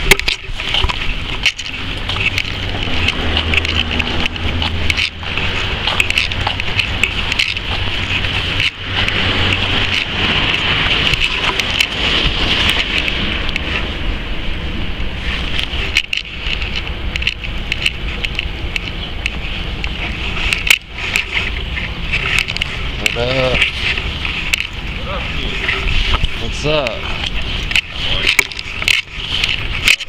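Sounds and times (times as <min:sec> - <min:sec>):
camera handling noise: 0:00.0 - 0:13.8, 0:15.4 - 0:24.8
wind rushing on microphone: 0:00.0 - 0:30.0.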